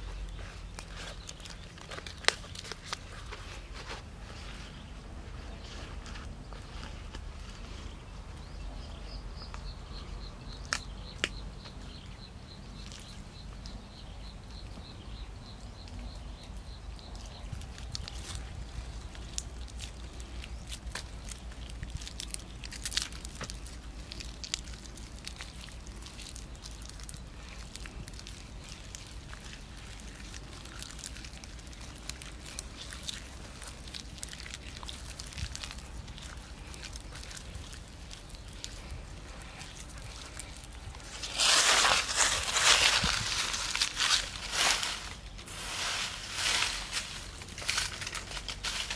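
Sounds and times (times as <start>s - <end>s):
low outdoor rumble: 0.0s - 48.9s
small wet clicks and smacks: 17.2s - 41.0s
wet mud squelching under hands: 17.6s - 48.9s.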